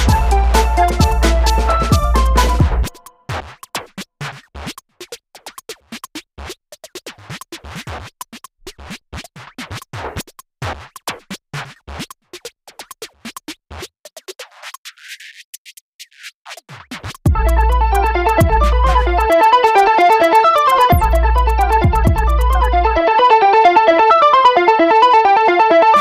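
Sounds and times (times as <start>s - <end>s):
electronic music with sharp clicks: 0.0s - 3.8s, 16.5s - 26.0s.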